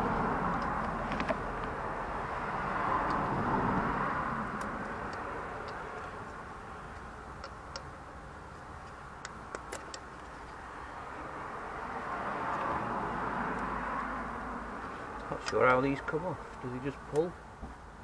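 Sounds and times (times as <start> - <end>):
pliers clicking on connectors: 4.6 - 7.9.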